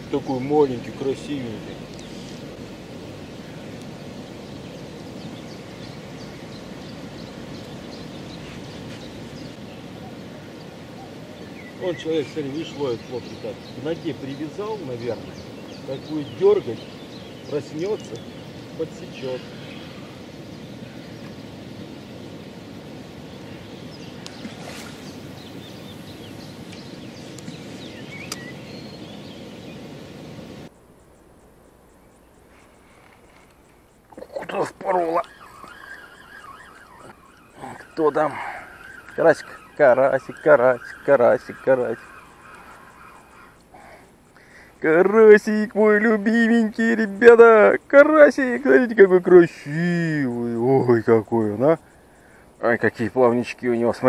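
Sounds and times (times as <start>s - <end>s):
small birds chirping: 0.0s - 54.0s
steady outdoor noise: 0.0s - 54.0s
fishing rod cast swish: 24.3s - 25.2s.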